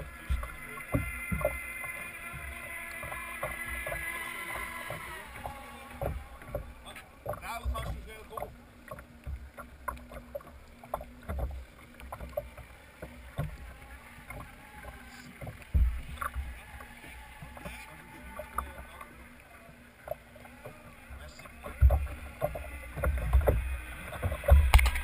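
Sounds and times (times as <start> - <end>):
faint hum: 0.0 - 25.0
water lapping against hull: 0.0 - 25.0
low thumps: 15.7 - 16.6.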